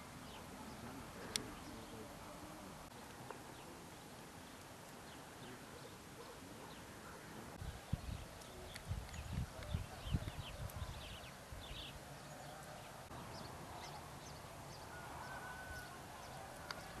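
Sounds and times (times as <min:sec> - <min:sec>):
wind buffeting microphone: 0:07.6 - 0:12.0.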